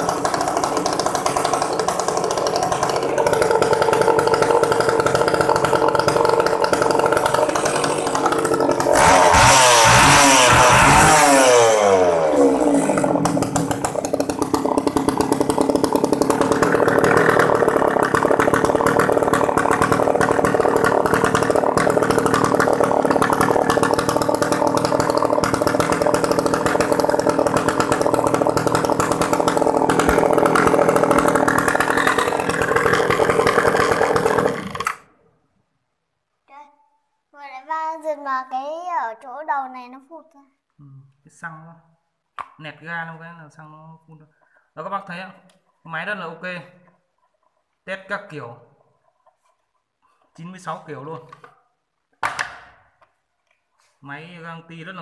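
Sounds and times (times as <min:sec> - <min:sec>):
chainsaw idling and revving: 0:00.0 - 0:35.2.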